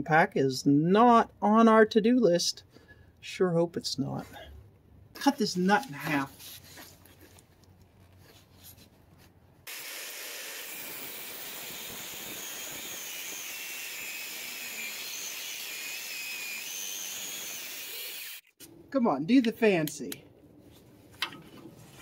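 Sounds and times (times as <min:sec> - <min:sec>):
angle grinder cutting metal: 0:09.7 - 0:18.5.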